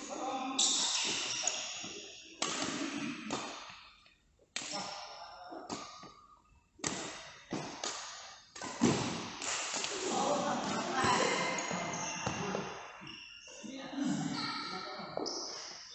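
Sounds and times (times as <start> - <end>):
rackets striking shuttlecock: 2.4 - 3.7, 6.8 - 10.0.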